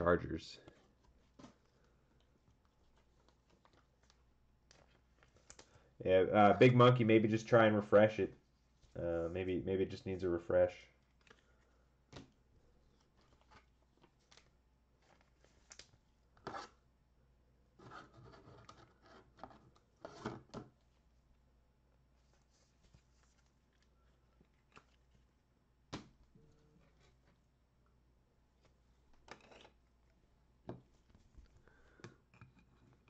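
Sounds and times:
cards and wrappers rustling: 0.3 - 9.5, 11.0 - 16.6, 22.2 - 25.4.

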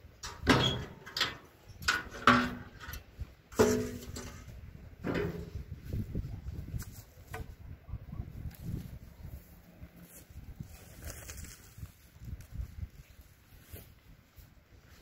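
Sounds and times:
stones clanking into metal truck bed: 0.2 - 5.8.

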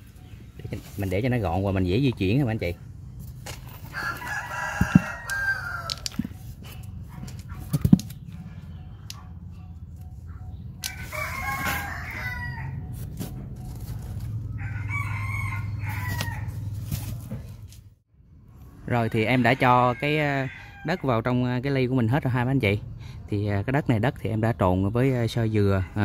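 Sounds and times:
rooster crowing: 3.9 - 6.2, 10.8 - 12.9, 14.5 - 16.7, 19.0 - 21.1.

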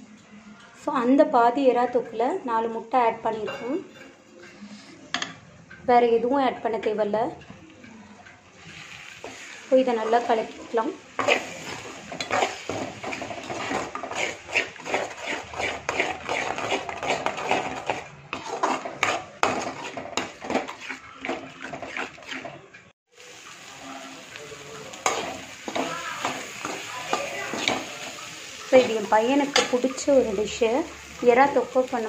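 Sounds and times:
spoon scraping metal pan: 3.3 - 5.8, 8.0 - 22.9, 25.0 - 32.0.

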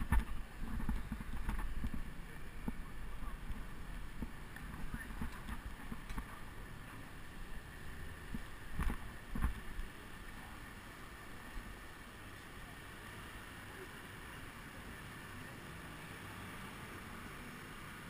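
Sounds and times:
wind on microphone: 0.0 - 6.5
road rumble: 0.0 - 18.0.

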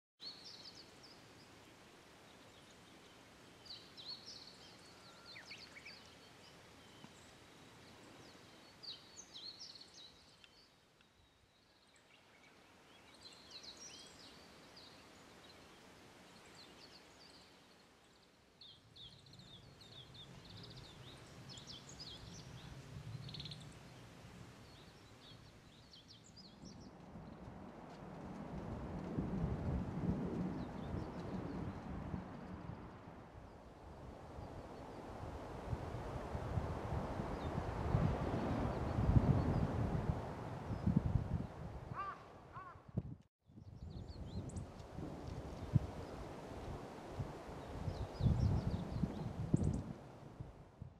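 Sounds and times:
faint small birds chirping: 0.2 - 27.4.

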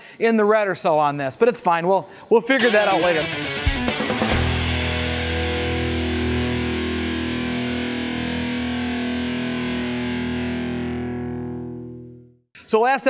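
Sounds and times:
distorted electric guitar chord: 2.6 - 12.4.

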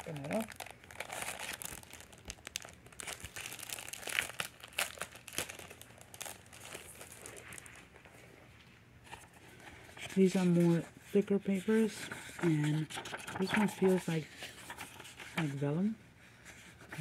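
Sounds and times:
packaging crinkling: 0.0 - 8.1.

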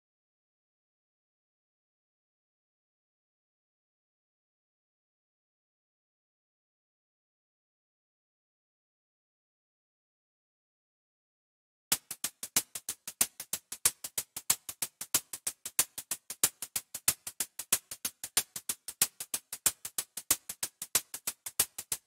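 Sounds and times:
synthesized closed hi-hat ticks: 11.9 - 22.0.

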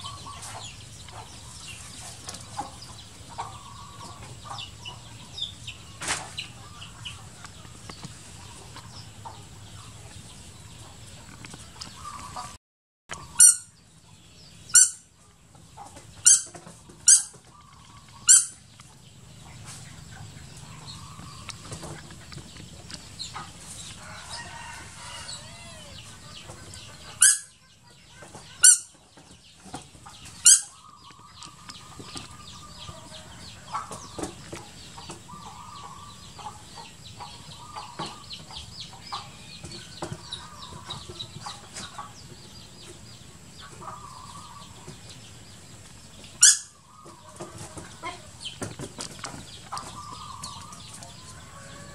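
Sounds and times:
shrill animal squawks: 14.7 - 15.0, 17.1 - 17.3, 18.3 - 18.6, 25.3 - 26.1, 27.2 - 27.6, 28.5 - 28.9, 30.4 - 30.8, 46.4 - 46.8.

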